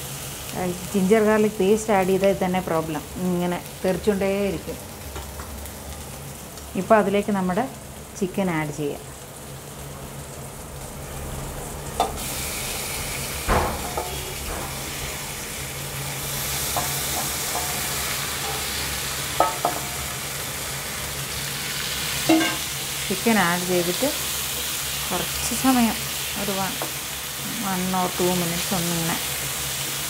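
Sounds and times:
chicken sizzling in hot oil: 0.0 - 30.0.

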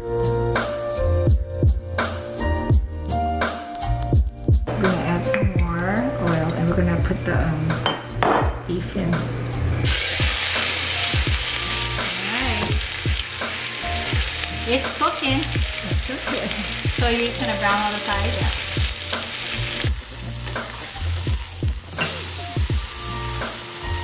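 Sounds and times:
meat sizzling in oil: 9.8 - 24.0.

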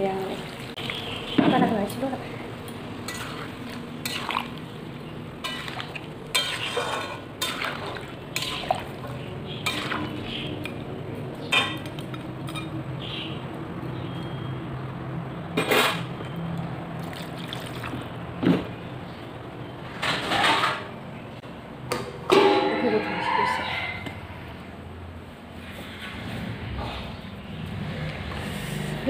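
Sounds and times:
spatula scraping in a wok: 5.4 - 10.2.

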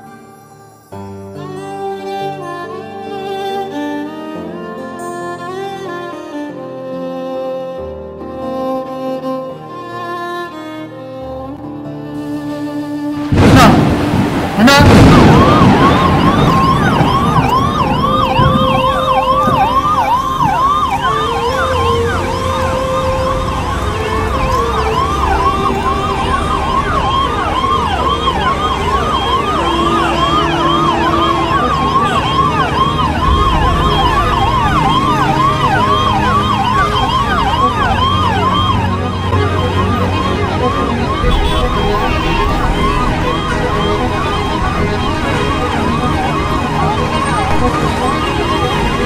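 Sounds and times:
ambulance siren yelping: 14.6 - 49.0.

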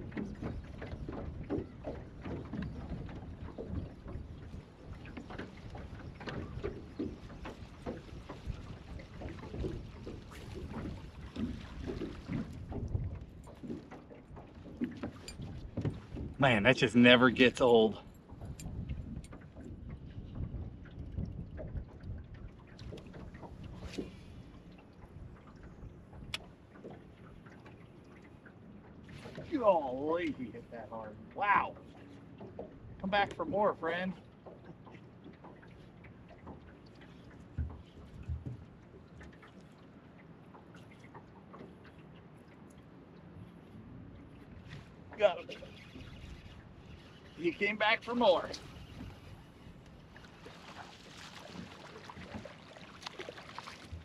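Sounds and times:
waves slapping against boat hull: 0.0 - 54.0
wind noise on microphone: 18.4 - 22.4
light ticks: 25.6 - 28.3.

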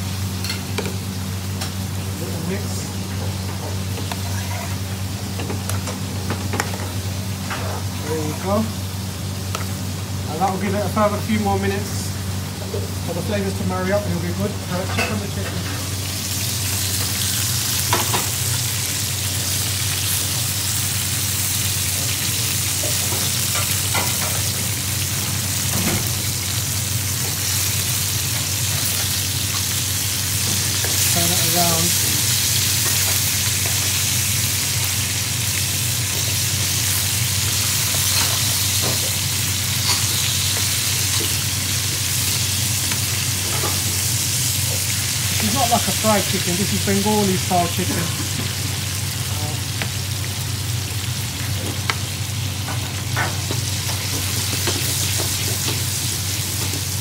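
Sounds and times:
chicken sizzling in frying pan: 0.0 - 57.0.

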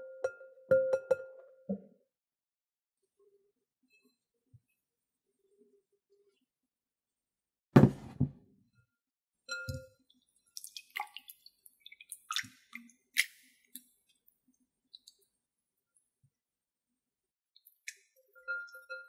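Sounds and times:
glass bowl thump on wooden table: 7.8 - 8.4
small splashes and drips: 9.7 - 16.1.

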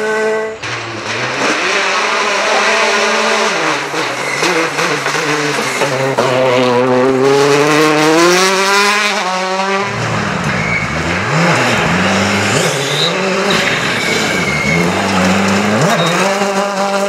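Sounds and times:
rally car accelerating: 0.0 - 17.0
rally car revving through gear changes: 0.0 - 17.0
tyres on loose gravel: 12.6 - 17.0.

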